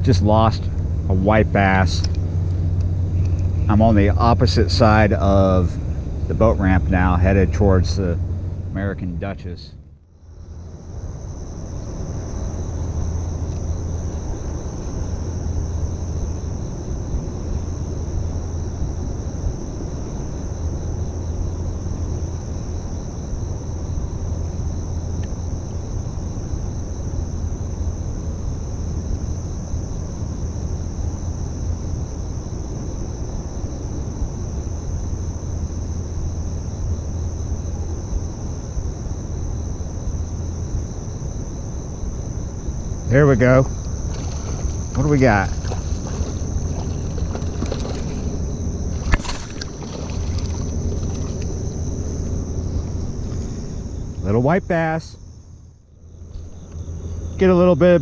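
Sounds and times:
high-pitched insect chorus: 0.0s - 58.0s
low riverside rumble: 0.0s - 58.0s.

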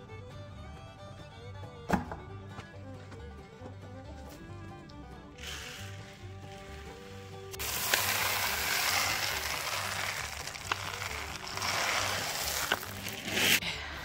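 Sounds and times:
feed pellets pouring: 5.4s - 13.6s.

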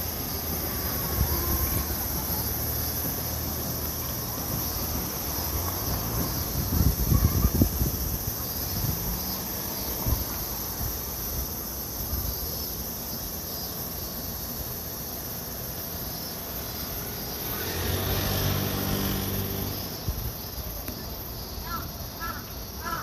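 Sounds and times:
high insect drone: 0.0s - 23.0s
traffic hum: 0.0s - 23.0s
motorbike passing: 16.4s - 20.5s.

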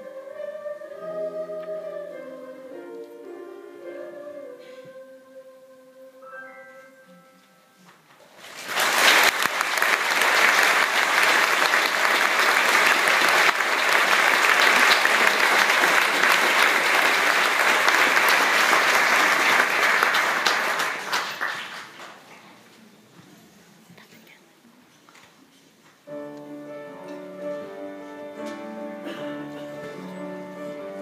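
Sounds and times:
choir singing held note: 0.0s - 6.3s
audience applauding: 8.4s - 22.3s.

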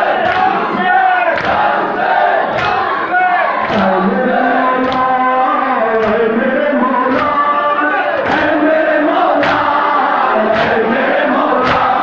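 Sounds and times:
crowd of men chanting: 0.0s - 12.0s.

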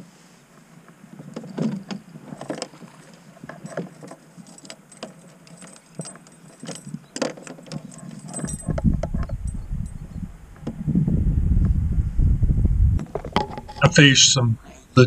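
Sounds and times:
fishing gear clicks and knocks: 0.9s - 10.0s, 13.0s - 14.0s.

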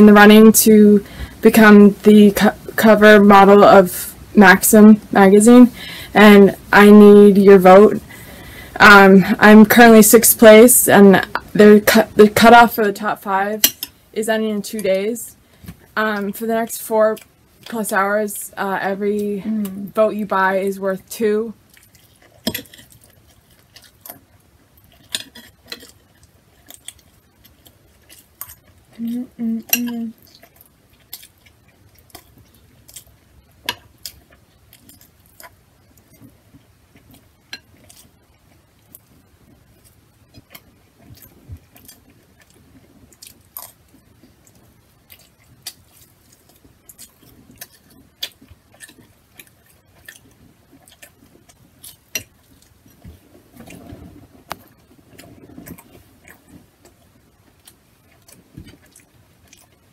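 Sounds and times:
person humming: 19.4s - 19.9s, 29.0s - 30.1s
chewing and mouth clicks: 21.7s - 29.0s, 29.7s - 59.9s.

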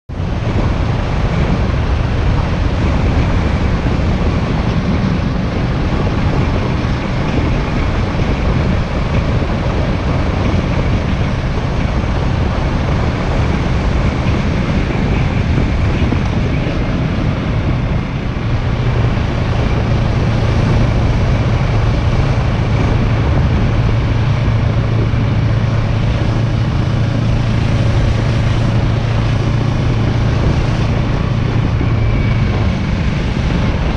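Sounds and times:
motorcycle engine running: 0.1s - 33.9s
steady low hum: 0.1s - 33.9s
wind noise on microphone: 0.1s - 33.9s.

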